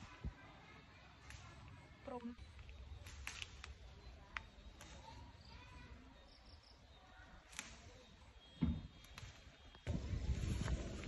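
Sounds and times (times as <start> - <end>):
stems snapping: 2.5 - 5.2, 7.4 - 8.0
leaves rustling: 9.0 - 11.0.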